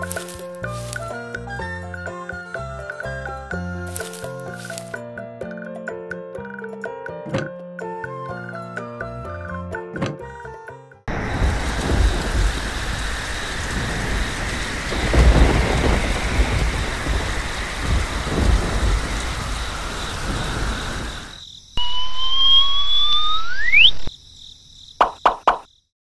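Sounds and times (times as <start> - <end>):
steady rain: 0.0 - 1.2, 3.9 - 4.9, 11.1 - 21.8
thunder rumbling: 11.1 - 21.4
rising whistle-like tone: 20.3 - 24.1.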